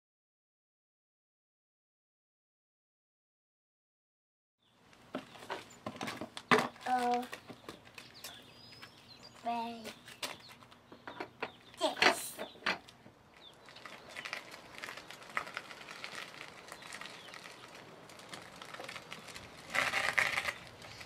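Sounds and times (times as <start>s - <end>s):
go-kart chain and wheels rattling: 12.0s - 21.0s.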